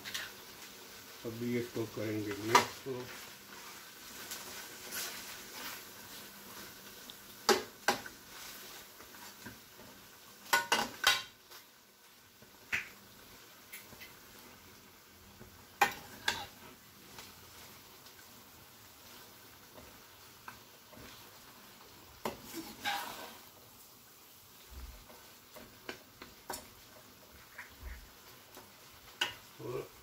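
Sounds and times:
faint sizzle: 0.0s - 30.0s
metal spoon scraping metal pan: 15.8s - 16.6s, 22.5s - 23.4s.

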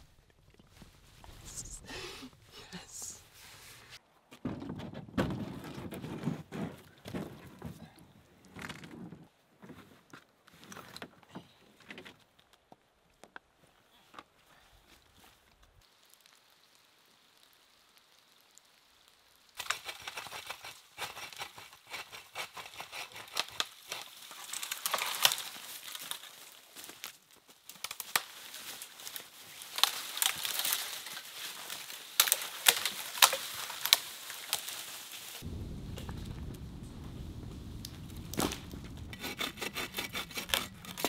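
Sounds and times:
dry leaves and twigs crunching: 23.2s - 36.3s
dead wood snapping: 32.2s - 34.6s, 37.8s - 41.0s
branch dragged across ground: 37.8s - 41.0s.

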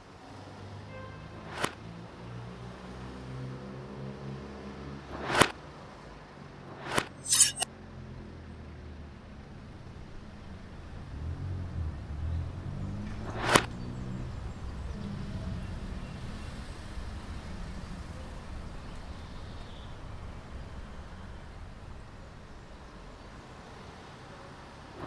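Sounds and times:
sharp swish: 6.7s - 7.7s.

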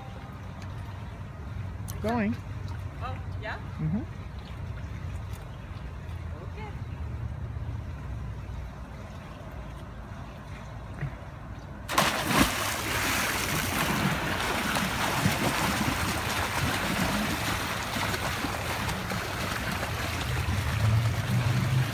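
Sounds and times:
diver splash into pool: 11.9s - 21.9s
swimming strokes splashing: 11.9s - 21.9s.

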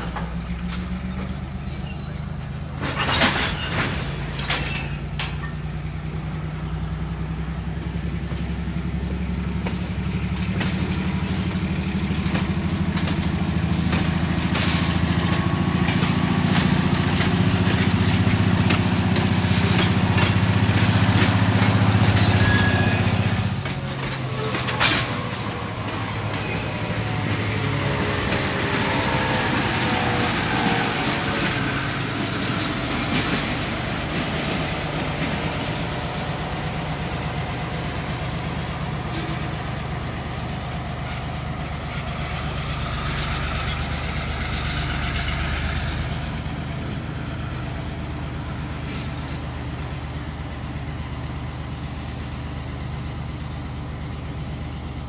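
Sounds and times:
model trains rattling on track: 7.8s - 39.8s.

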